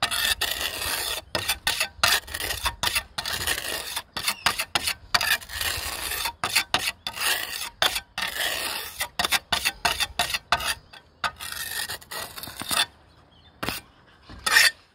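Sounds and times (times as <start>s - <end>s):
trowel scraping compound: 0.0s - 14.9s.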